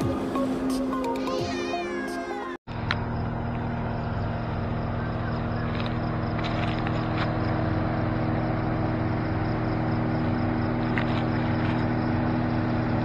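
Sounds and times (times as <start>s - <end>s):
vehicle engine running: 2.7s - 13.0s.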